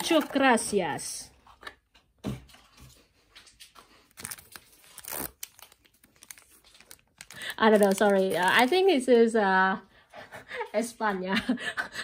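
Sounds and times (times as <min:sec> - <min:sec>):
plastic packaging crinkling and tearing: 0:03.9 - 0:09.1.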